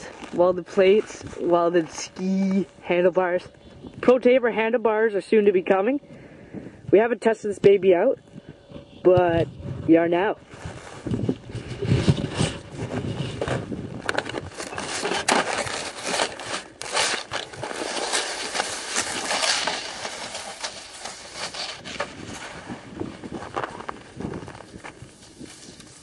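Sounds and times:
snow crunching and scraping: 0:00.0 - 0:02.7, 0:10.2 - 0:26.0.

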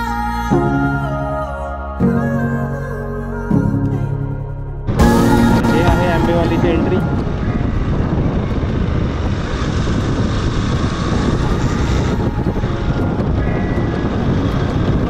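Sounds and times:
wind rushing over microphone: 0:04.9 - 0:15.0
motorcycle engine running: 0:05.0 - 0:15.0.

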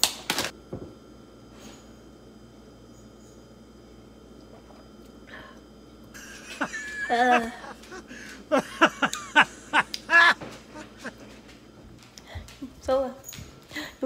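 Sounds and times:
woman laughing: 0:06.2 - 0:11.3.

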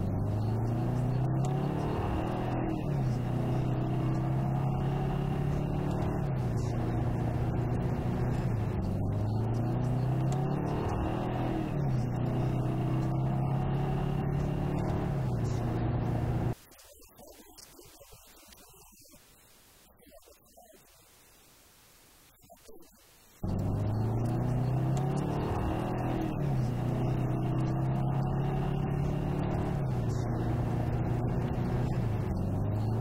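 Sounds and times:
car engine running: 0:00.0 - 0:16.6, 0:23.4 - 0:33.0.

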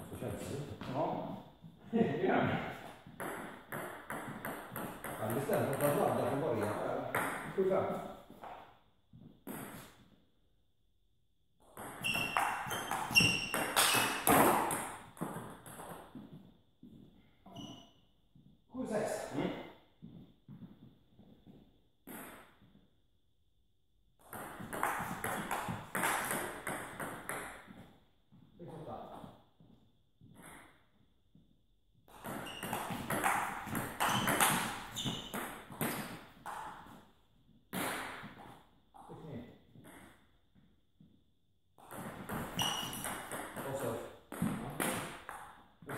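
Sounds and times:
table tennis ball clicking and bouncing: 0:03.0 - 0:07.6, 0:11.6 - 0:16.3, 0:24.2 - 0:27.8, 0:32.1 - 0:37.0, 0:41.8 - 0:45.9.

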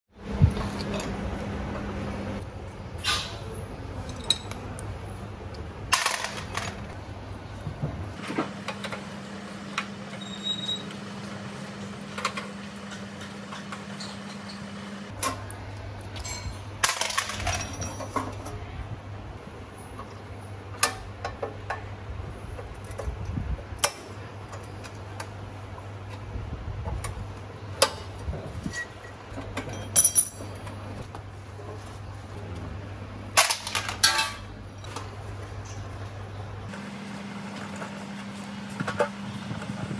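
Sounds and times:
metal clinks and clanks: 0:16.2 - 0:18.4, 0:29.6 - 0:30.8.

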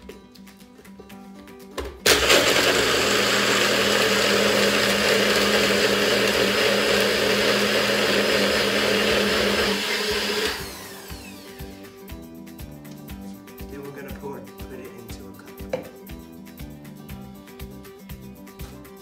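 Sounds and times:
blender blending ice: 0:02.0 - 0:11.9.

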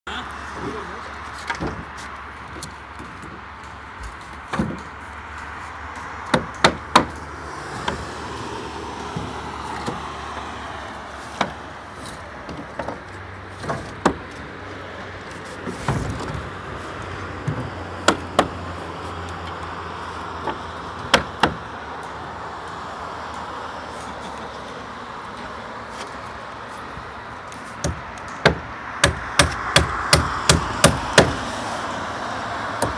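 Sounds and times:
road traffic: 0:00.0 - 0:32.9
hammer knocking wooden planks: 0:04.0 - 0:04.9, 0:06.2 - 0:07.2, 0:13.6 - 0:14.2, 0:17.4 - 0:18.6, 0:20.4 - 0:21.6, 0:27.8 - 0:31.4.

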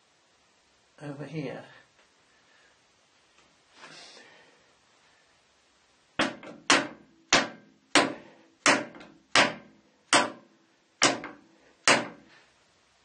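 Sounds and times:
mallet tapping steel part: 0:06.2 - 0:10.4, 0:11.0 - 0:12.2.

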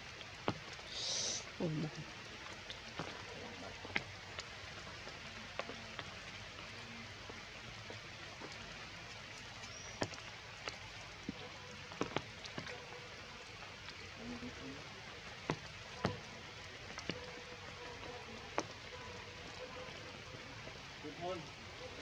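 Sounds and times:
steady rain falling: 0:00.0 - 0:22.0.

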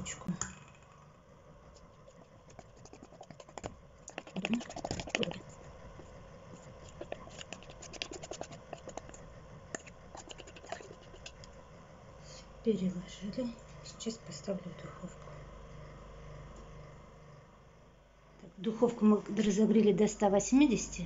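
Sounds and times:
whisk scraping metal bowl: 0:01.8 - 0:11.5.

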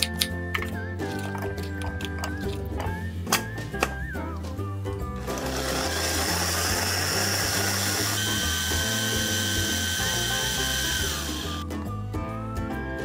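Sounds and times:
food processor motor whine: 0:05.3 - 0:11.6.

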